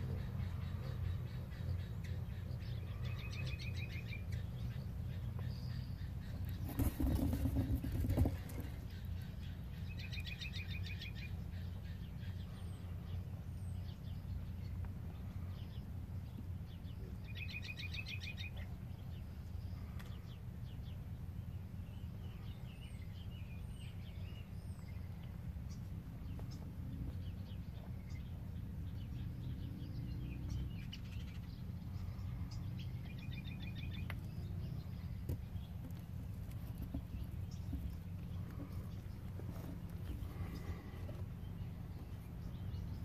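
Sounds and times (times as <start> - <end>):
songbird singing a rapid trill: 0.0 - 6.5, 8.9 - 35.8
steady low hum: 0.0 - 43.0.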